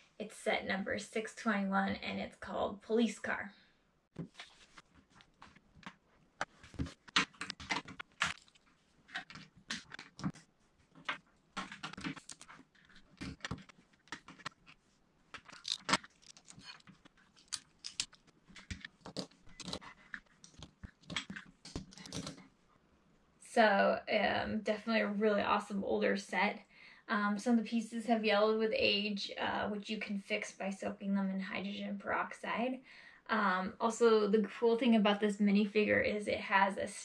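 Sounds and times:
plastic bricks clicking together: 15.4 - 19.8.

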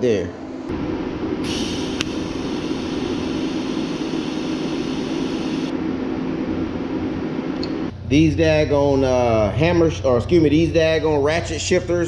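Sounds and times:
electric welding arc hissing: 1.4 - 5.7.

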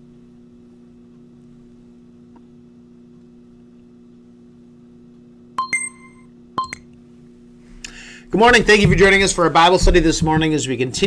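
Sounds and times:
steady low hum: 0.0 - 11.0
timer electronic beep: 5.6 - 6.8.

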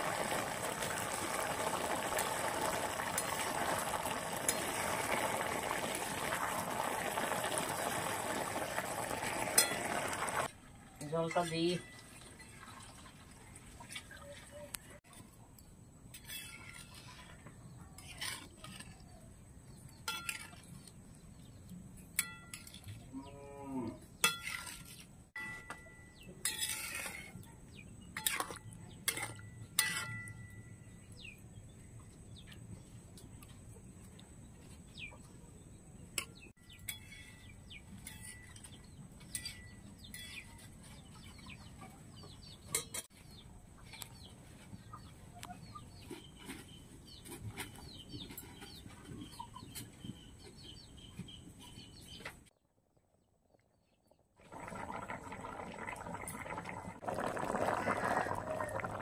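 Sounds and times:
spatula scraping metal pot: 26.4 - 27.4.

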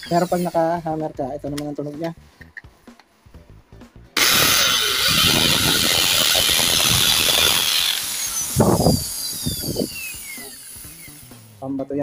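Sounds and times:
hammer drill boring into concrete: 4.2 - 11.4
drill motor winding down: 4.2 - 11.6.

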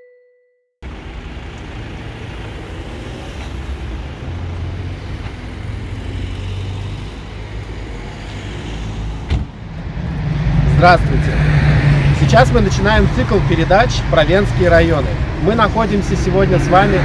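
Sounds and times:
jingle ringing note: 0.0 - 0.6
city street traffic: 0.8 - 17.0.

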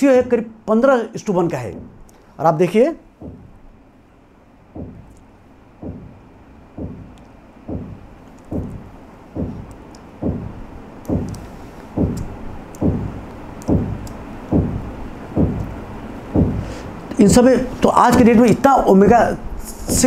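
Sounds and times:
low thumps dropping in pitch: 1.7 - 2.1, 3.1 - 3.8, 4.7 - 5.2, 5.8 - 11.4, 12.0 - 16.7, 19.0 - 20.0.

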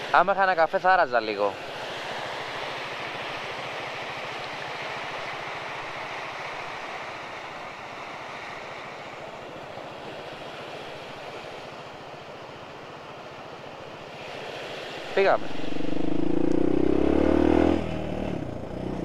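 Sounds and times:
motorcycle engine running: 15.1 - 19.0.

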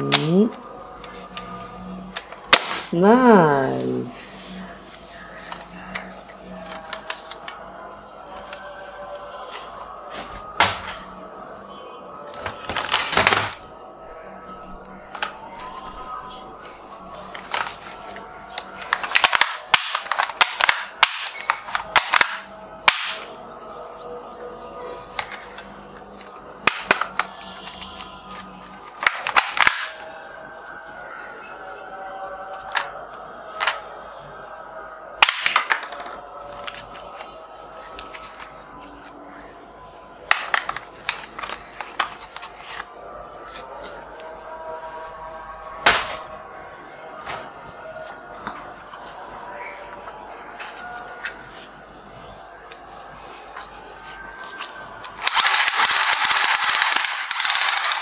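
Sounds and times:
soft background music: 0.0 - 58.0
sharp crack: 2.5 - 3.0
plastic toy gun clicking: 18.8 - 23.3, 26.6 - 27.3, 29.0 - 30.0, 35.2 - 36.0, 55.2 - 58.0.

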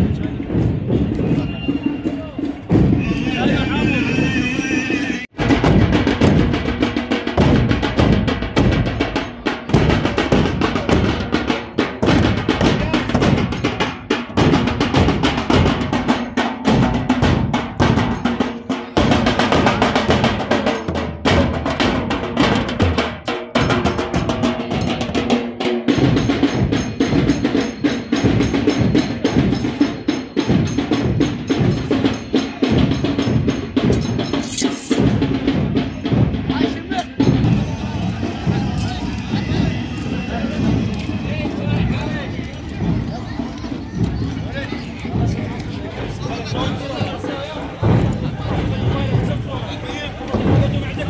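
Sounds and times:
bass drums beaten: 0.0 - 51.0
side drums with rolls: 0.0 - 51.0.

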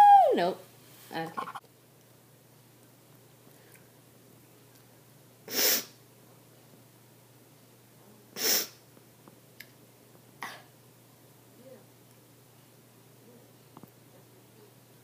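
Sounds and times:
sharp puffs of breath: 5.5 - 6.0, 8.4 - 8.8.

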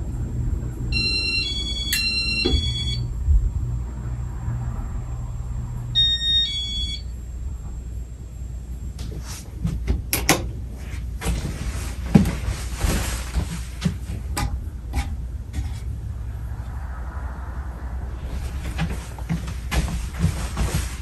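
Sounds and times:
ceiling fan motor hum: 0.0 - 21.0
two-note electronic beep: 1.0 - 3.1, 6.0 - 7.1
rustling handling noise: 10.7 - 14.4, 18.4 - 21.0.

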